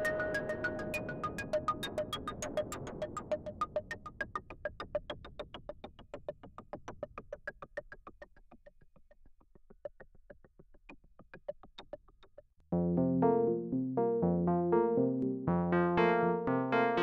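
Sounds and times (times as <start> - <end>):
sustained synthesizer chord: 12.8 - 17.0.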